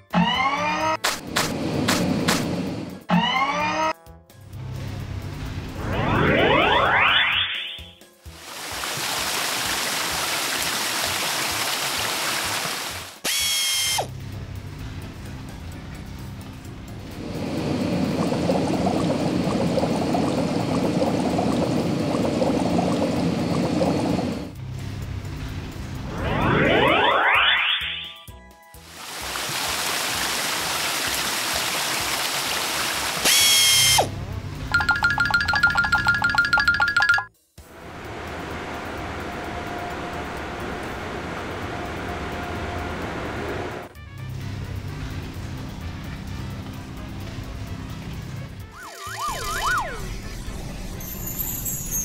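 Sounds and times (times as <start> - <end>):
low background music: 0.0 - 11.2, 14.0 - 27.3, 33.2 - 51.1
cartoon water spray hiss: 28.8 - 34.1
bouncy music with plinking note: 34.7 - 37.4.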